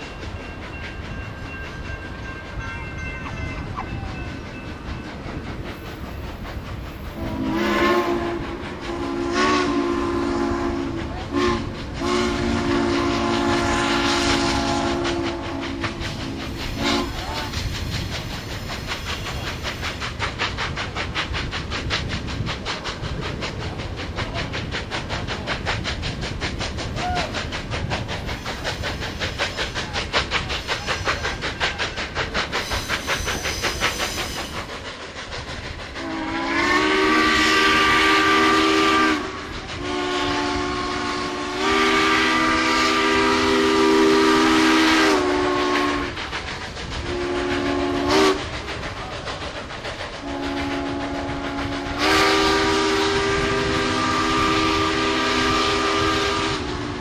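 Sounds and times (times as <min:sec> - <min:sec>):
rhythmic beat of moving train: 0:00.0 - 0:57.0
wind noise: 0:00.0 - 0:57.0
steam whistle chord blasts: 0:07.1 - 0:17.6, 0:36.0 - 0:46.2, 0:47.0 - 0:48.5, 0:50.2 - 0:57.0.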